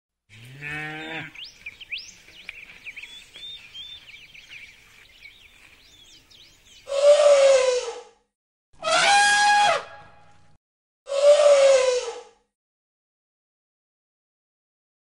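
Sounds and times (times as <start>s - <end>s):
cow mooing: 0.3s - 1.4s
birds chirping: 0.4s - 7.0s
loud animal call: 6.9s - 8.1s, 8.8s - 10.3s, 11.1s - 12.4s.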